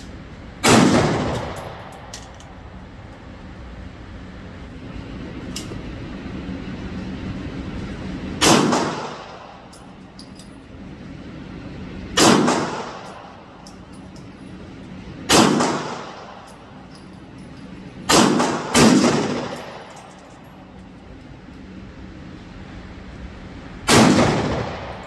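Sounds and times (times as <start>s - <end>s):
rifle shots echoing indoors: 0.6s - 2.1s, 8.4s - 9.4s, 12.2s - 13.1s, 15.3s - 16.4s, 18.1s - 20.3s, 23.8s - 25.0s.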